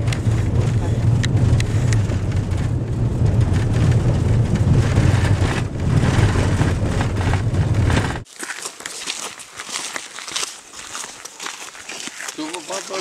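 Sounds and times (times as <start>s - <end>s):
vehicle cabin rumble: 0.0s - 8.2s.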